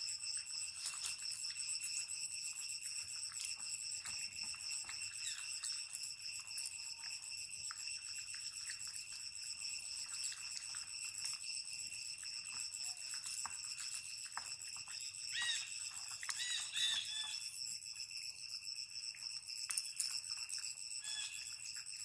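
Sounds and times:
high-pitched insect drone: 0:00.0 - 0:22.0.

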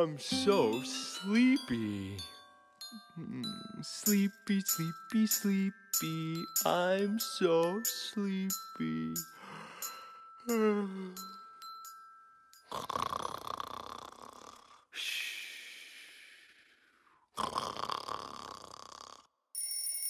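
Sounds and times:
soft chime notes: 0:00.0 - 0:12.4
person snoring: 0:12.7 - 0:15.0, 0:16.0 - 0:19.3.

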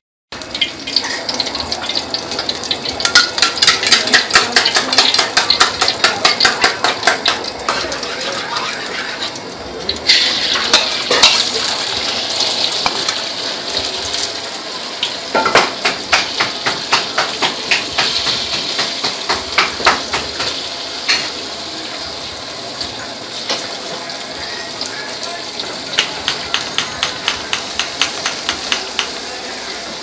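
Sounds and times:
egg sizzling in hot oil: 0:00.4 - 0:30.0
metal ladle tapping wok: 0:00.5 - 0:08.0, 0:26.0 - 0:29.2.

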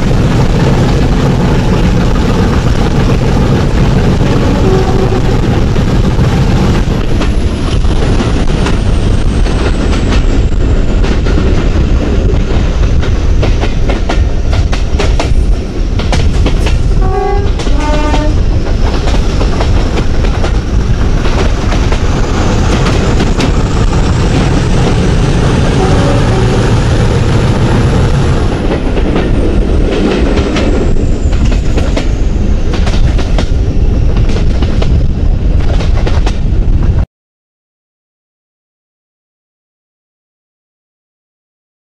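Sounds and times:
two-tone train horn: 0:04.4 - 0:05.4, 0:17.0 - 0:18.4, 0:25.7 - 0:26.9.

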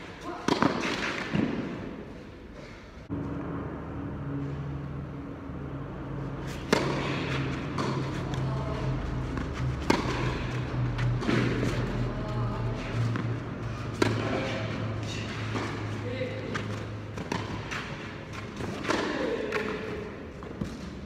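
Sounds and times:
tennis balls struck by racquets: 0:00.0 - 0:02.1, 0:06.4 - 0:21.0.

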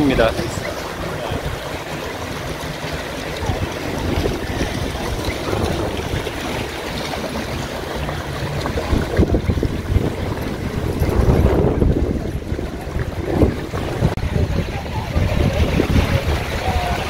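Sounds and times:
waves splashing at shoreline: 0:00.0 - 0:17.0
wind rumbling on microphone: 0:00.0 - 0:17.0.

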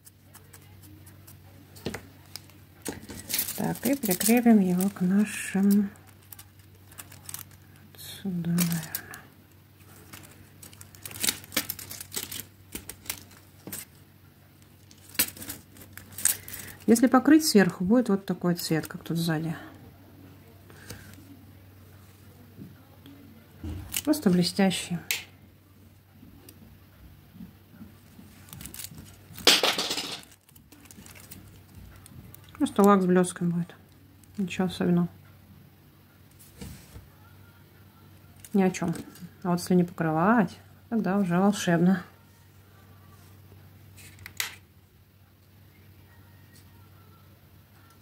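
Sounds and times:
plastic tips clattering and rustling: 0:01.8 - 0:07.6, 0:09.8 - 0:14.0, 0:14.8 - 0:17.1, 0:28.3 - 0:32.9
loud plastic rattle: 0:28.5 - 0:31.6.

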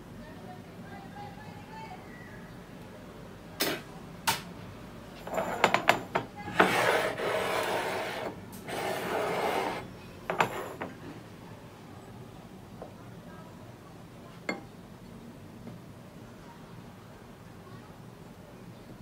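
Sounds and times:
bowl scraping on countertop: 0:05.2 - 0:11.0.

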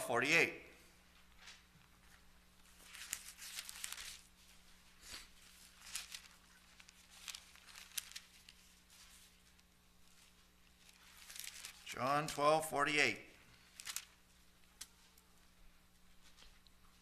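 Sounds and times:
thin pages turning: 0:01.3 - 0:12.4, 0:13.6 - 0:15.0.

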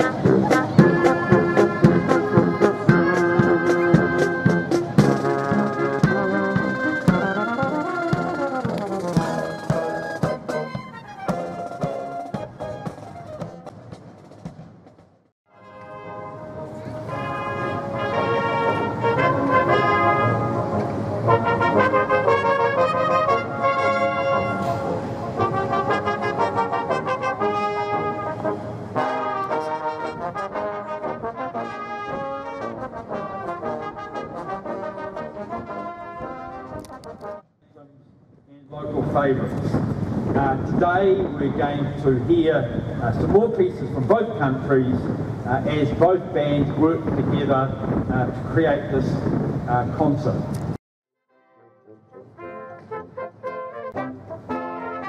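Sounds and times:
brass band playing: 0:00.0 - 0:14.6, 0:15.5 - 0:37.4, 0:51.5 - 0:55.0
drum beating: 0:00.0 - 0:15.3.

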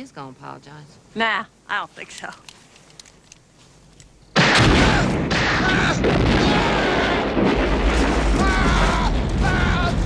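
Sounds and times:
huge explosion blast: 0:04.4 - 0:10.0
fireball rumble: 0:04.5 - 0:10.0.

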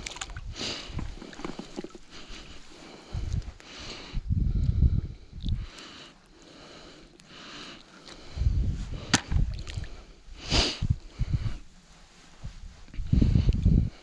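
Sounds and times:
water sloshing and splashing: 0:00.0 - 0:02.6, 0:09.0 - 0:10.0.

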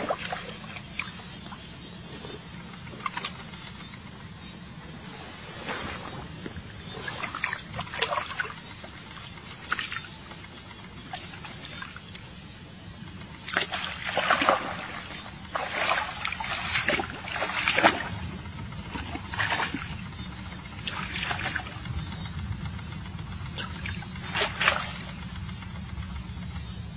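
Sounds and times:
hands splashing in muddy water: 0:13.4 - 0:18.2, 0:19.0 - 0:20.0, 0:23.6 - 0:25.1.

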